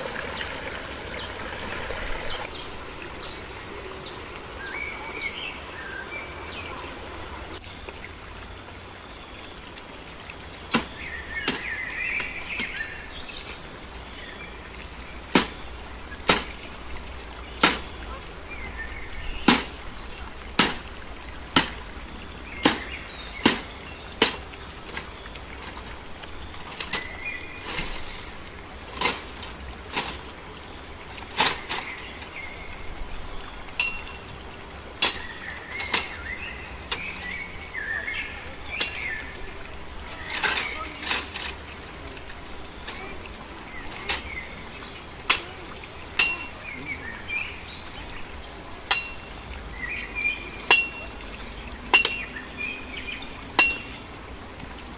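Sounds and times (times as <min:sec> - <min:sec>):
high insect drone: 0:00.0 - 0:54.9
machete chopping bamboo: 0:10.7 - 0:12.8, 0:15.3 - 0:15.6, 0:16.2 - 0:16.6, 0:17.6 - 0:17.9, 0:19.4 - 0:19.8, 0:20.6 - 0:20.9, 0:21.5 - 0:21.8, 0:22.6 - 0:24.4, 0:35.0 - 0:36.2, 0:46.2 - 0:46.5.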